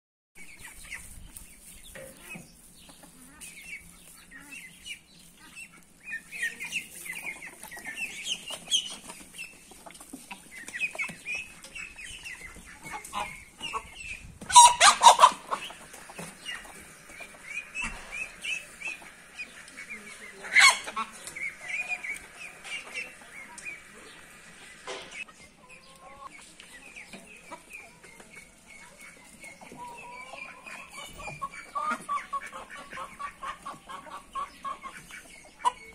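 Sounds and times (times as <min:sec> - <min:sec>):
chickens clucking: 0:00.4 - 0:35.9
high peeping calls: 0:10.4 - 0:35.9.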